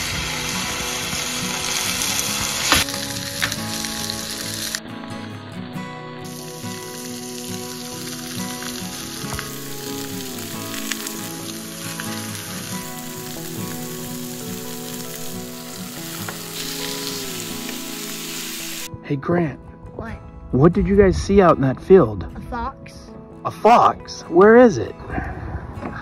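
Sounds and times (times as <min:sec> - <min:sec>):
meat sizzling on a griddle: 0:00.0 - 0:04.8, 0:06.2 - 0:18.9
soft background music: 0:00.0 - 0:26.0.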